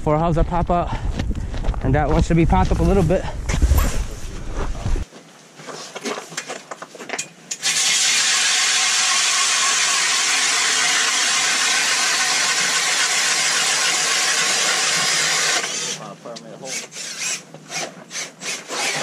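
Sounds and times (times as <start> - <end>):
power ice auger drilling: 7.6 - 16.1, 16.7 - 19.0.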